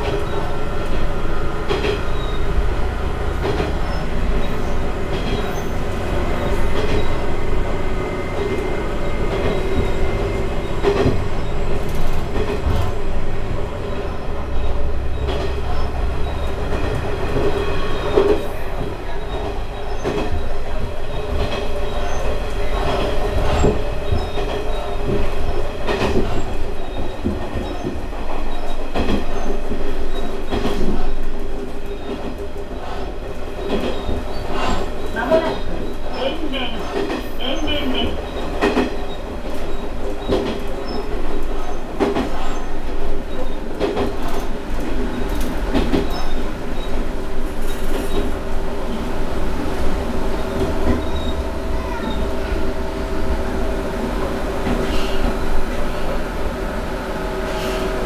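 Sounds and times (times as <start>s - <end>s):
railcar engine drone: 0.0s - 58.0s
wheels clicking over rail joints: 10.7s - 49.1s.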